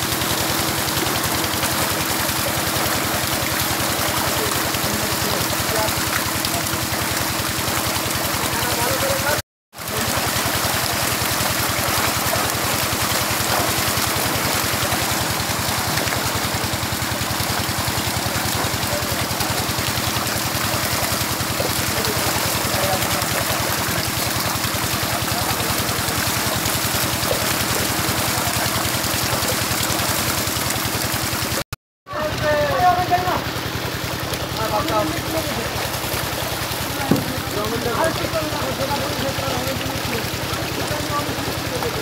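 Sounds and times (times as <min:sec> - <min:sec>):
fish thrashing in water: 0:00.0 - 0:31.6, 0:33.4 - 0:42.0.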